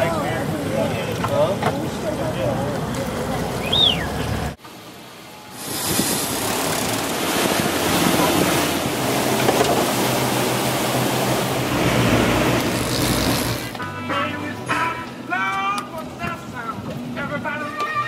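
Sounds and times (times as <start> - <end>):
water rushing past boat: 0.0 - 13.9.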